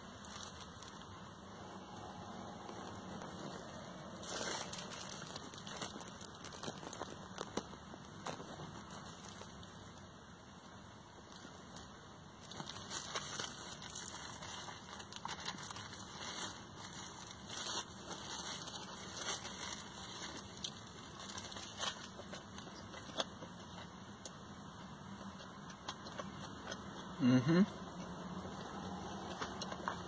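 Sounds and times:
plastic wrap crinkling: 0.0s - 1.2s, 1.8s - 10.0s, 11.2s - 23.9s.

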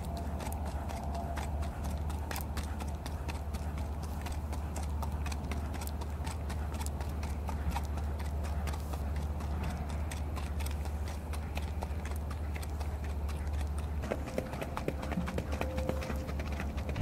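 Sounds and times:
horse hoofbeats clopping: 0.0s - 17.0s
low steady rumble: 0.0s - 17.0s.

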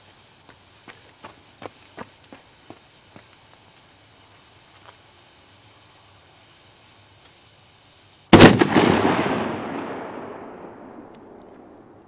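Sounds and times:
firecracker bang: 8.3s - 11.6s.

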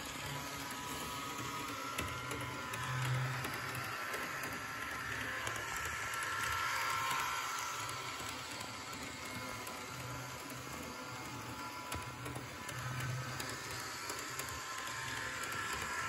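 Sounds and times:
model train motor whining: 0.0s - 16.0s.

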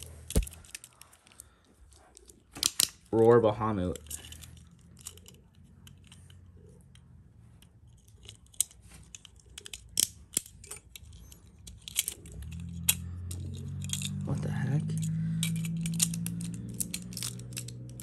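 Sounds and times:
low hum: 4.0s - 18.0s.

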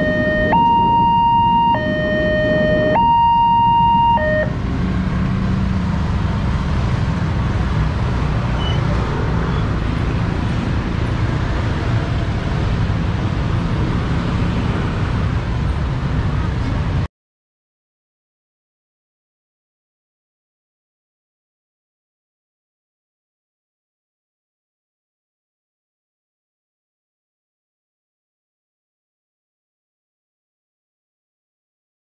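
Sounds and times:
motorbike traffic rumble: 0.0s - 17.1s.

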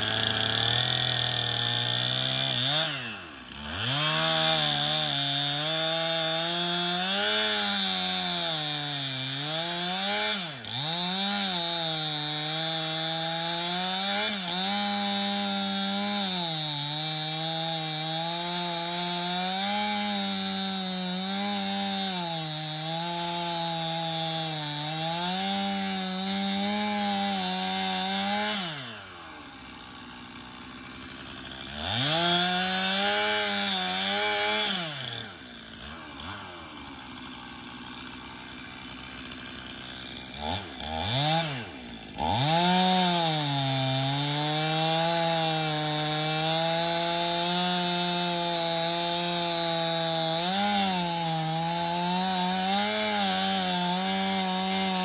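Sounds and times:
chainsaw cutting logs: 0.0s - 55.0s
chainsaw idling and revving: 0.0s - 55.0s.

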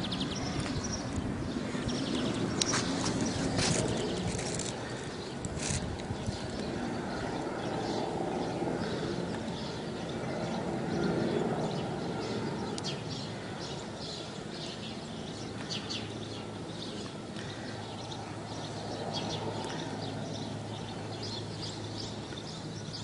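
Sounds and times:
distant helicopter rotor and engine: 0.0s - 23.0s
small birds chirping: 0.0s - 23.0s.

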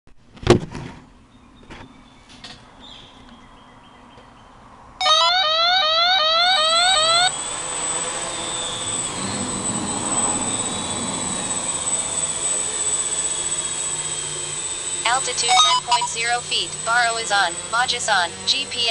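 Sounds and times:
thump: 0.4s - 1.0s
rising electronic chirps: 5.0s - 18.4s
quadcopter propellers whining: 5.0s - 18.9s.

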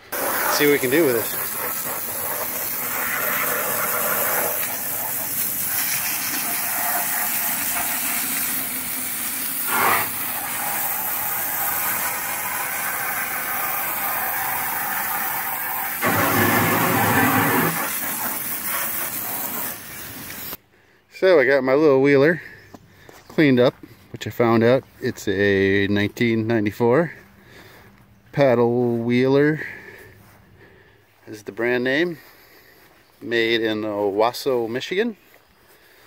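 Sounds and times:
pressure washer spraying water: 0.0s - 20.6s.

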